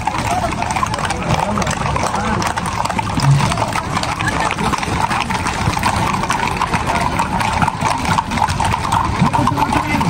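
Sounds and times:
background din: 0:00.0 - 0:10.0
horse hooves clopping: 0:00.0 - 0:10.0.

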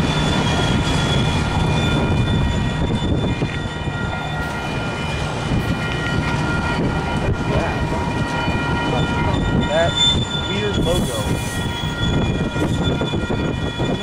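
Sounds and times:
freight train rumbling: 0:00.0 - 0:14.0
high steady tones: 0:00.0 - 0:14.0.

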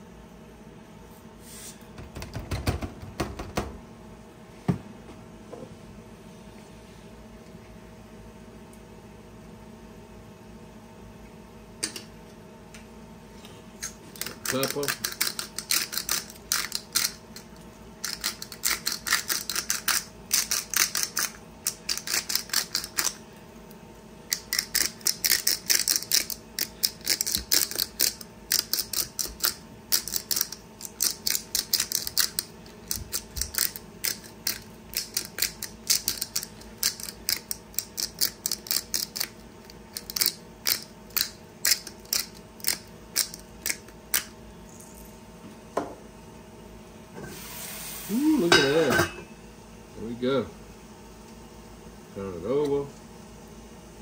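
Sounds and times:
pepper mill grinding: 0:13.8 - 0:23.2, 0:24.3 - 0:45.1.

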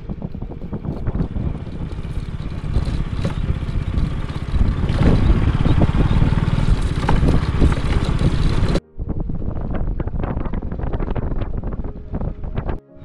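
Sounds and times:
vehicle engine running: 0:00.0 - 0:12.8
clattering and rattling: 0:00.9 - 0:08.8.

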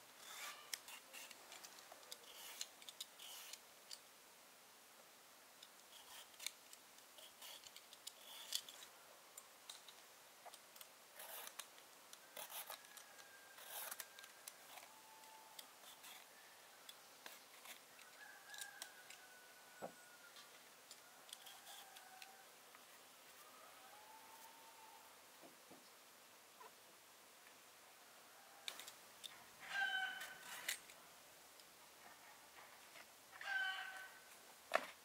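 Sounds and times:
faint small clicks and snips: 0:05.6 - 0:19.2.

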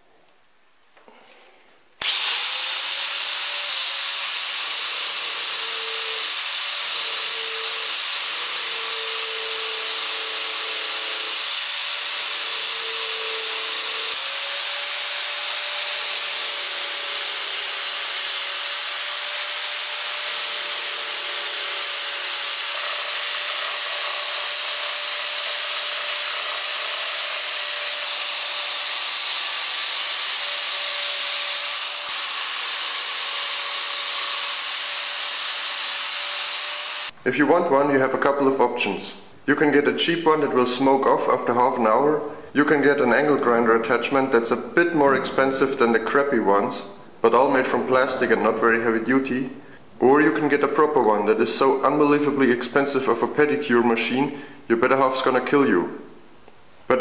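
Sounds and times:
angle grinder motor whine: 0:02.0 - 0:37.2.

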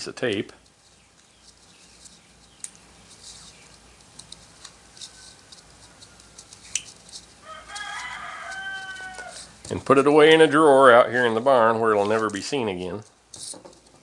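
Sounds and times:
tape crackling off a roll: 0:00.3 - 0:10.0
rooster crowing: 0:07.4 - 0:09.6.

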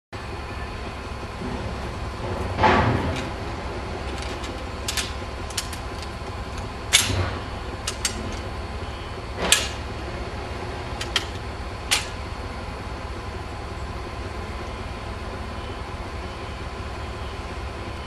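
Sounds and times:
diesel locomotive idling: 0:00.2 - 0:18.0
sharp metal lever clanks: 0:04.1 - 0:08.5, 0:09.4 - 0:09.9, 0:11.0 - 0:12.2.

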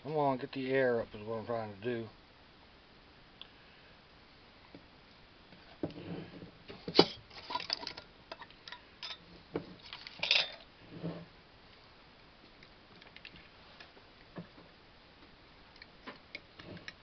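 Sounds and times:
glass jar and lid clinking: 0:10.1 - 0:10.6.

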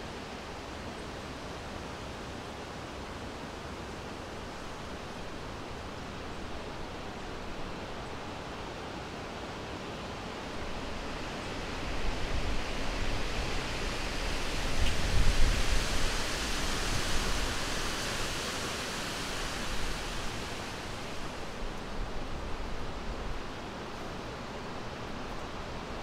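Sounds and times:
wind gusting: 0:11.9 - 0:22.3.

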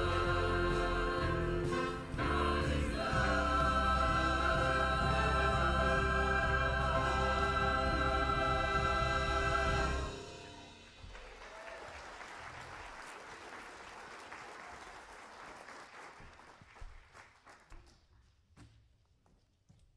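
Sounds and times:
choir holding chord: 0:00.0 - 0:11.0
audience applauding: 0:11.0 - 0:18.0.

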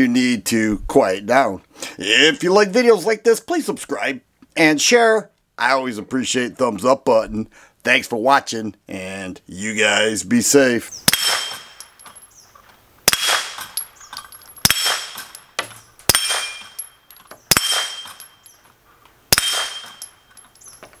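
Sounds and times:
suppressed pistol shots: 0:11.1 - 0:11.8, 0:13.0 - 0:13.9, 0:14.6 - 0:15.4, 0:16.1 - 0:16.7, 0:17.5 - 0:18.2, 0:19.3 - 0:20.0
steel target metallic ring: 0:13.2 - 0:18.6, 0:19.3 - 0:20.8.

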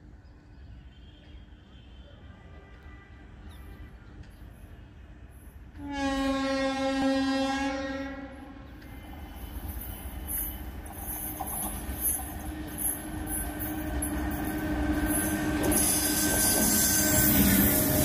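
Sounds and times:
train rumble: 0:02.4 - 0:18.0
locomotive horn blast: 0:05.8 - 0:08.6.

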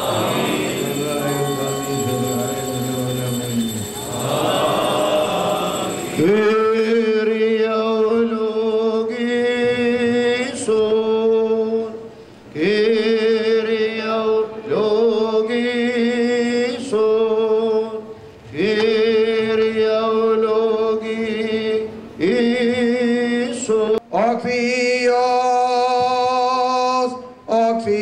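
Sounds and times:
man chanting: 0:00.0 - 0:09.3
breaths: 0:12.1 - 0:12.5.

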